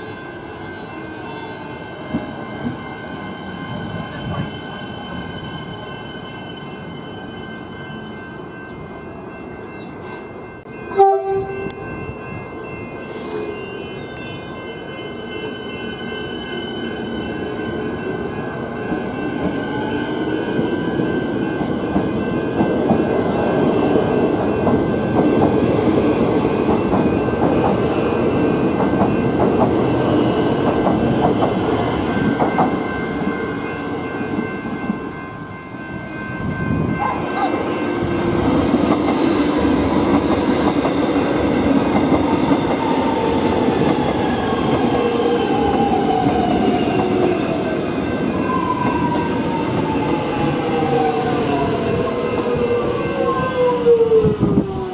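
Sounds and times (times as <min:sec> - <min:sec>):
falling whine of passing train: 0:00.0 - 0:54.9
electric trains running: 0:11.6 - 0:54.9.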